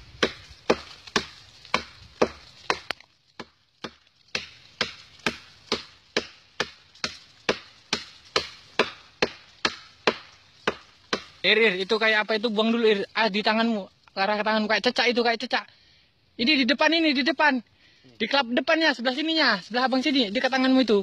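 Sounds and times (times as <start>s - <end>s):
machete chopping rotten wood: 0.0s - 11.5s.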